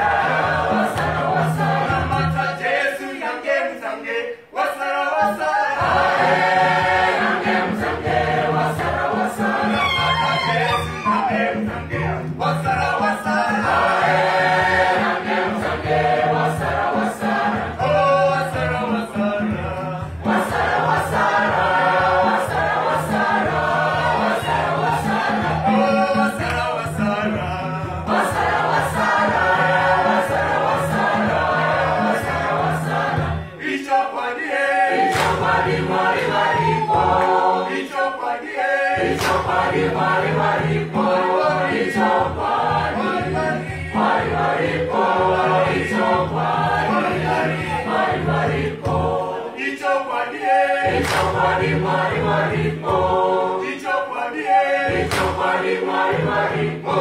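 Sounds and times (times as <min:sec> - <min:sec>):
rhythmic hand clapping: 0:00.0 - 0:02.7, 0:05.8 - 0:57.0
choir singing gospel song: 0:00.0 - 0:57.0.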